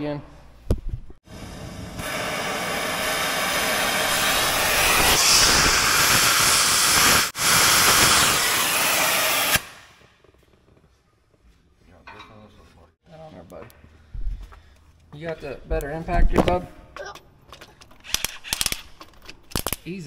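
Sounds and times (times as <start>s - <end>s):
torch flame hissing: 1.3s - 9.9s.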